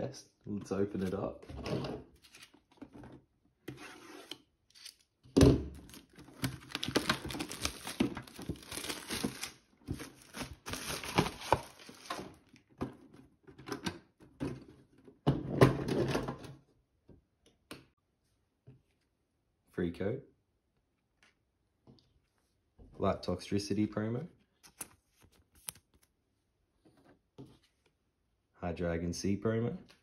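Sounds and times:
plastic wrap crinkling and tearing: 5.8 - 12.5.

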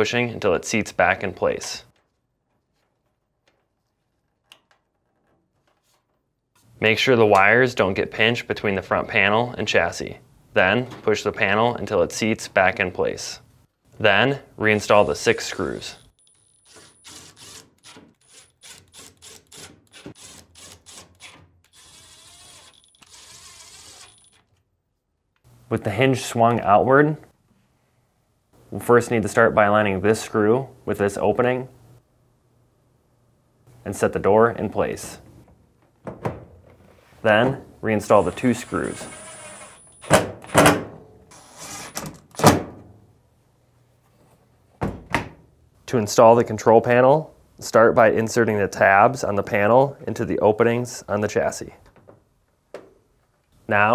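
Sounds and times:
power driver whirring: 20.2 - 24.5, 38.2 - 39.8.

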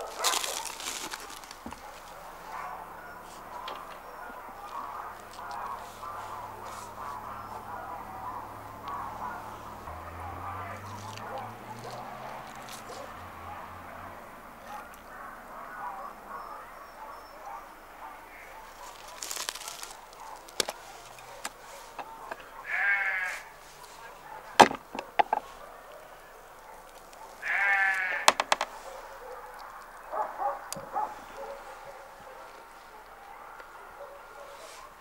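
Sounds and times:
livestock bleating: 22.6 - 23.6, 27.4 - 28.3.

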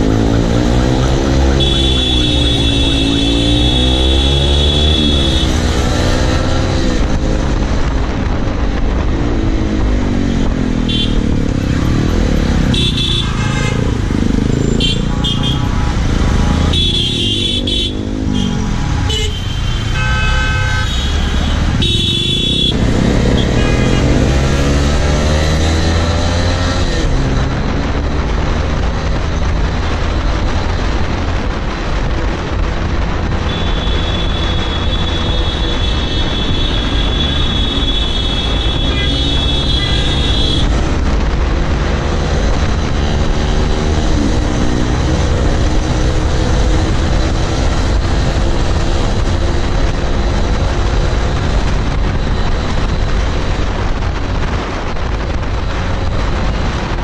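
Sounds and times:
motorcycle engine accelerating: 0.0 - 19.1, 21.2 - 31.5, 36.6 - 57.0
wind rumble on microphone: 6.5 - 12.8, 25.8 - 57.0.

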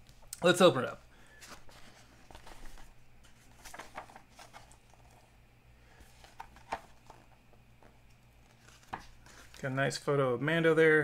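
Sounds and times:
magazine pages rustling: 1.3 - 10.0.

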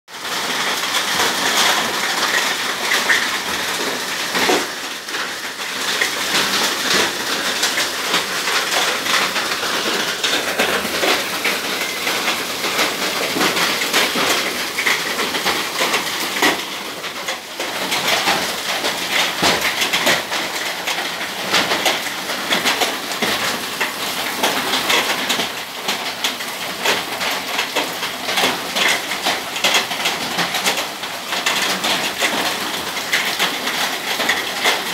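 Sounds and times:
hail and rain on concrete: 0.1 - 34.9.

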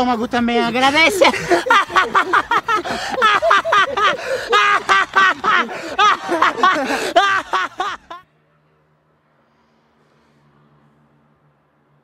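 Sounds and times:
man laughing loudly: 0.6 - 8.2.

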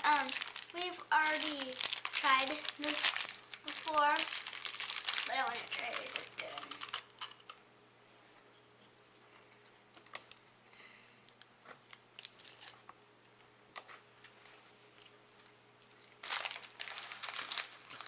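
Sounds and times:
foil wrapper crinkling: 0.0 - 7.6, 11.8 - 12.9, 16.0 - 18.0
faint steady hum: 0.0 - 18.0.

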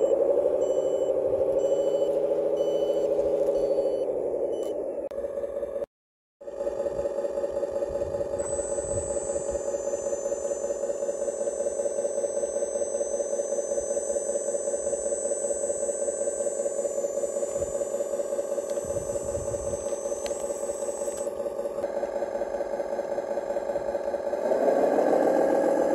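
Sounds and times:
pulsing mechanical hum: 0.0 - 25.9
thin high whine: 8.2 - 21.8.

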